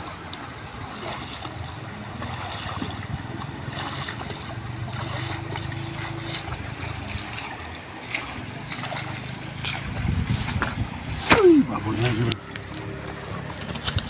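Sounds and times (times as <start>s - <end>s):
water splashing from wading: 0.0s - 14.0s
wind on microphone: 9.4s - 12.4s.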